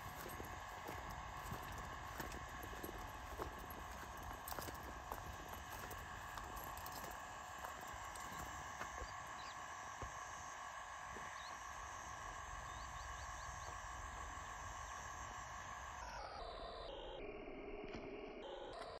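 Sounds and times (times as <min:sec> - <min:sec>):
insect chorus: 0:00.0 - 0:10.4, 0:11.1 - 0:15.6.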